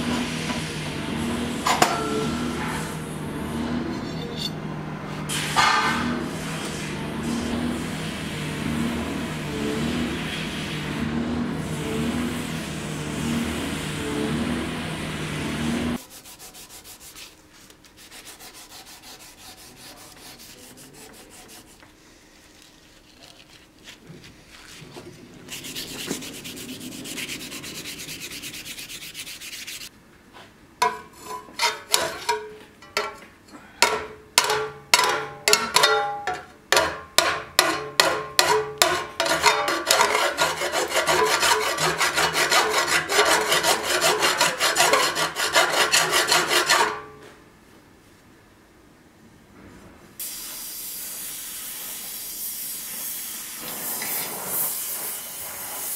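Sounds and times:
knife scraping: 0:22.4 - 0:29.9, 0:30.8 - 0:32.6, 0:37.6 - 0:47.2
knife blade rubbing strokes: 0:25.5 - 0:29.9, 0:39.2 - 0:47.0.

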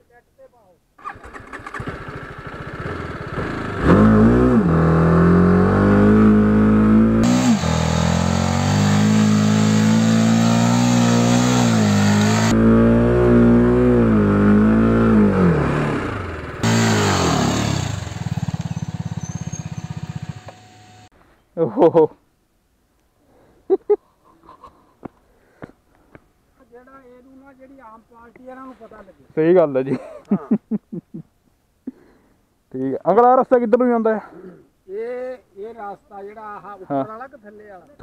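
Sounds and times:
motorcycle engine revving: 0:01.0 - 0:21.1.

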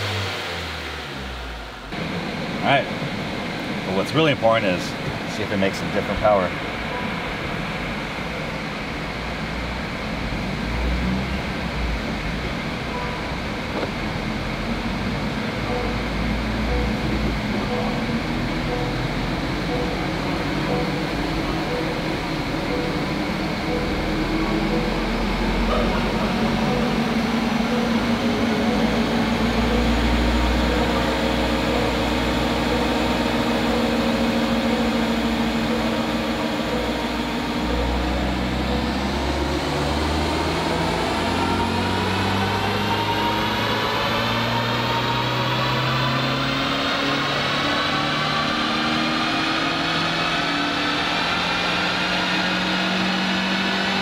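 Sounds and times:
car engine revving on dyno: 0:00.0 - 0:54.0
high whine: 0:00.0 - 0:54.0.

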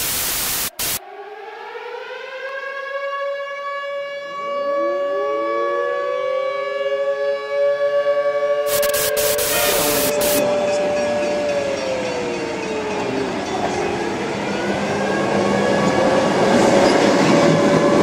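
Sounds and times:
siren-like wail: 0:00.8 - 0:18.0.

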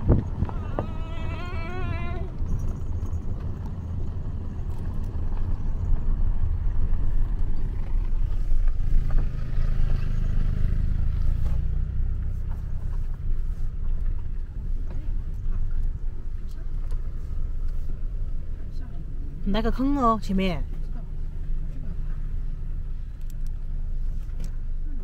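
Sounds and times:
car engine and tyres rumbling: 0:00.0 - 0:25.0.

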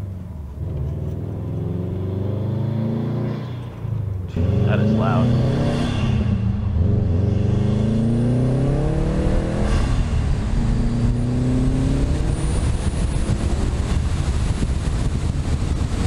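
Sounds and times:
car engine accelerating: 0:00.0 - 0:16.0
wind and road noise: 0:00.0 - 0:16.0.

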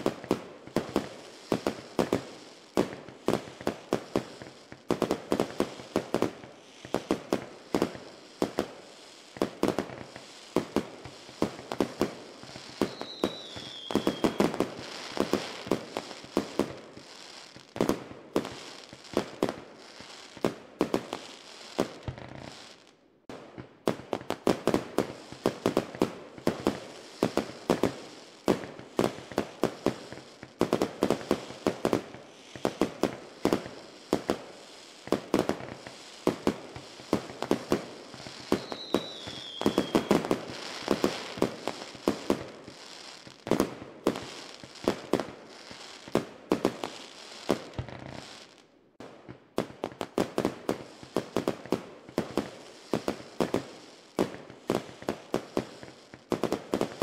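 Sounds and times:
fireworks bangs and pops: 0:00.0 - 0:57.0
firework falling whistle: 0:12.8 - 0:14.6, 0:38.3 - 0:41.3.

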